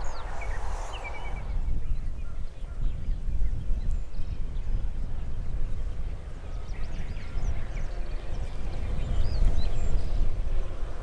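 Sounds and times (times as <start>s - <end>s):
short whistled bird calls: 0.0s - 2.4s
faint high bird chirps: 0.0s - 3.1s
wind buffeting microphone: 0.0s - 11.0s.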